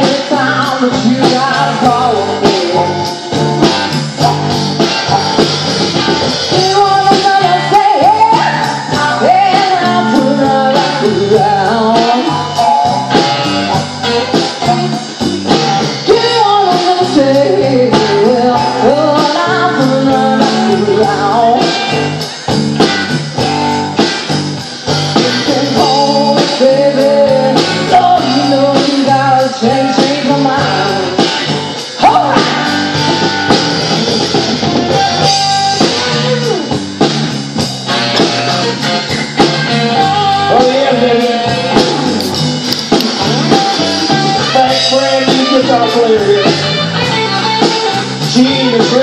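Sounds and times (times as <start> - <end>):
drum kit: 0.0 - 49.0
electric guitar: 0.0 - 49.0.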